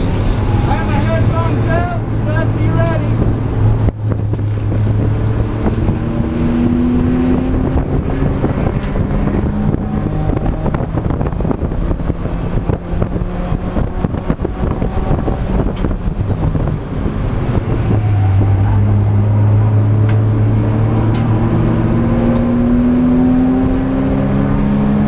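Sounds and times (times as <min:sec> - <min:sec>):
race car engine from inside: 0:00.0 - 0:25.0
road and wind noise: 0:00.0 - 0:25.0.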